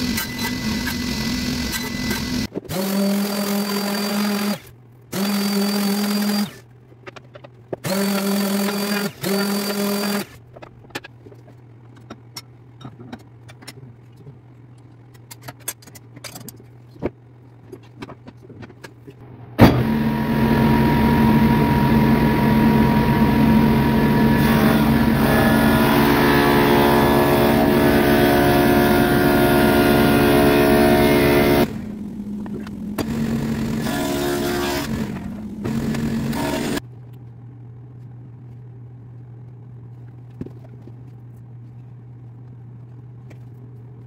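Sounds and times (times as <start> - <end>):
table saw cutting wood: 0.0 - 4.6, 19.6 - 36.8.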